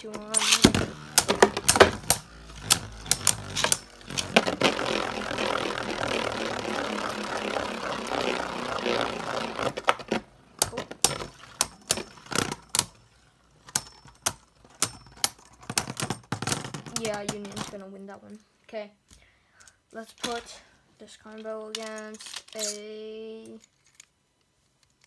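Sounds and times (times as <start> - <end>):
spinning tops rattling: 0.0 - 17.4
spinning tops clicking: 0.1 - 15.4.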